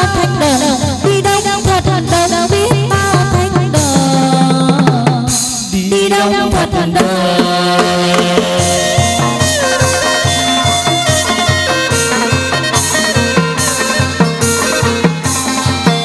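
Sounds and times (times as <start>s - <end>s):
drum beats: 0.0s - 16.0s
melody on pitched instruments: 7.9s - 16.0s.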